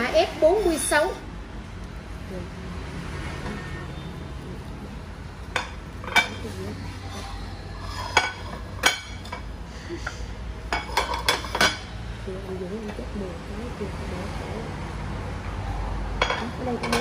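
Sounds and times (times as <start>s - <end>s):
ceramic plates clinking: 5.5s - 11.9s, 16.2s - 17.0s.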